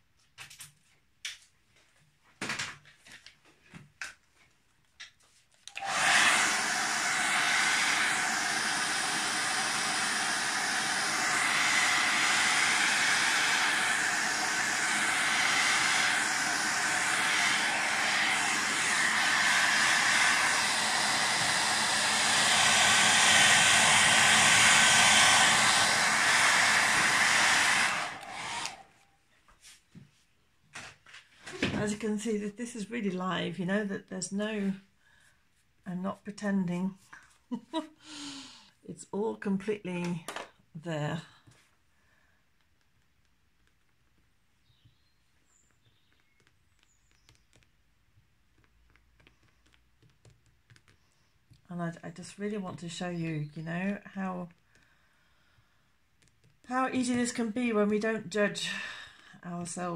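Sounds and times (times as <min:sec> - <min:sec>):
hair dryer blowing: 0:05.7 - 0:29.0, 0:56.7 - 0:59.9.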